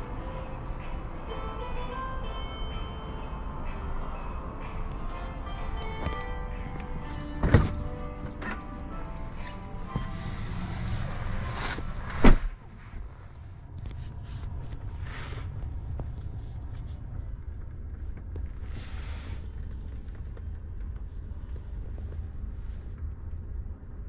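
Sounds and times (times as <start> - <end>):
low steady rumble: 0.0 - 24.0
rustling in seat: 5.1 - 13.1
car door thudding shut: 7.4 - 8.6, 12.1 - 12.5.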